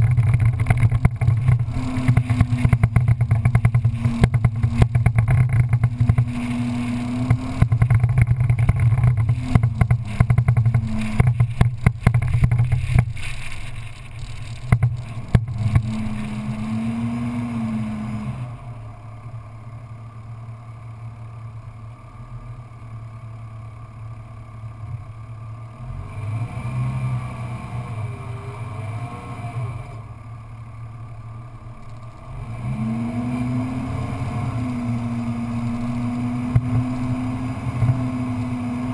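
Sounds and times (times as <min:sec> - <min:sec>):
vehicle rattling and bumping: 0:00.0 - 0:17.5, 0:35.0 - 0:38.9
off-road vehicle engine revving: 0:00.0 - 0:20.3, 0:22.2 - 0:38.9.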